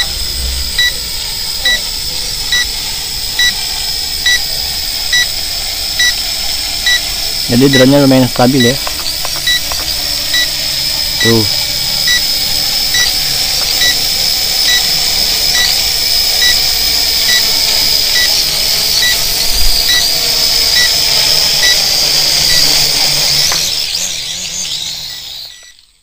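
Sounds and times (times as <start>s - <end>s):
short electronic beep: 0.0s - 1.0s
quadcopter propellers whining: 0.0s - 26.0s.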